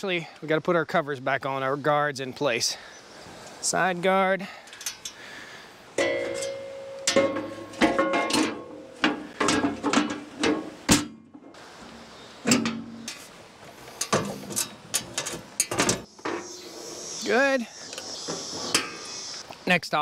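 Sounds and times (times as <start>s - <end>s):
metal blade guards clanking: 6.0s - 10.6s.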